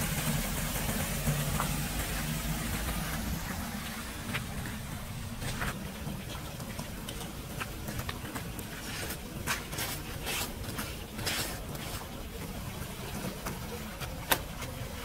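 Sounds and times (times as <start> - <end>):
flip-flop footsteps splashing water: 0.9 - 15.0.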